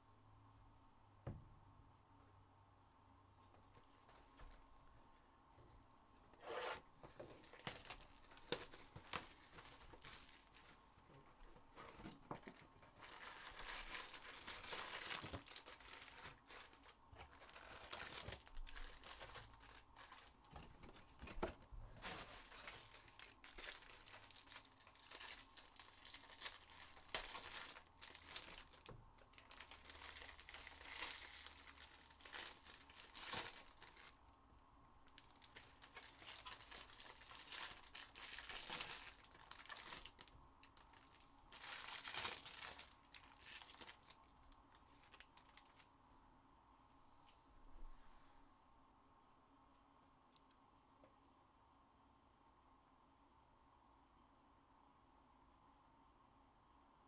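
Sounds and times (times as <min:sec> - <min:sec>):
card packs torn open and crinkled: 0:06.5 - 0:10.8, 0:11.7 - 0:21.1, 0:22.0 - 0:34.2, 0:35.1 - 0:45.9.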